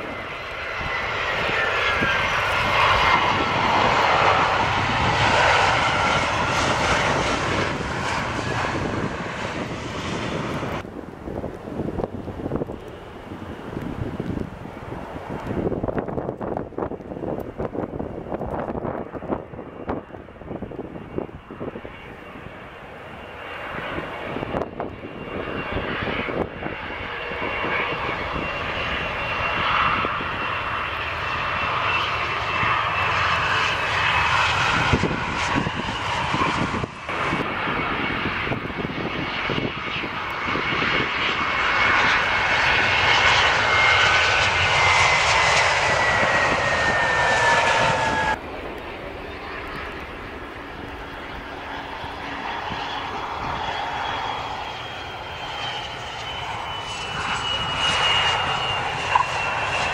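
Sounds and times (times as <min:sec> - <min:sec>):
jet airliners landing: 0:00.0 - 0:59.9
turbofan roar and whine: 0:00.0 - 0:59.9.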